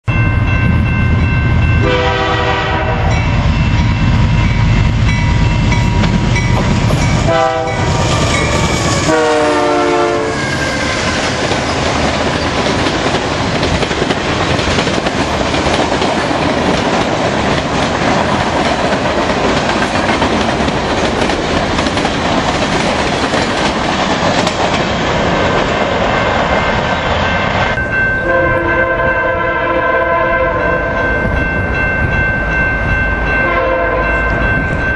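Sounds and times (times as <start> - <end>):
diesel locomotive engine rumbling: 0.0 - 34.9
train horn blasts: 1.8 - 3.4, 7.2 - 11.4, 28.2 - 31.1, 33.4 - 34.2
train wheels clattering on rail: 3.3 - 27.8.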